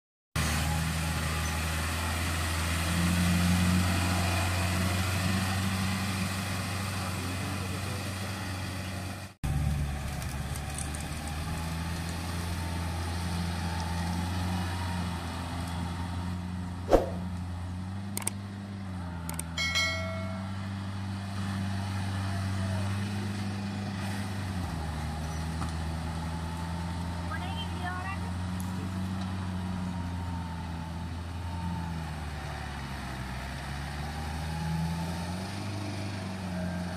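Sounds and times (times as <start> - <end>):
tractor diesel engine running: 0.4 - 36.9
brief pitched sound: 16.9 - 17.3.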